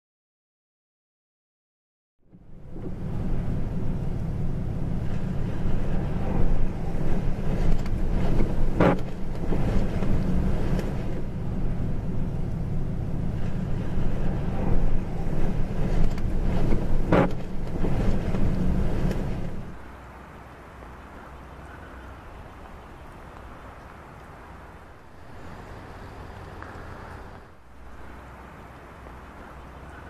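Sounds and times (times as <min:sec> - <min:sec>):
storm wind buffeting microphone: 0:02.6 - 0:19.8.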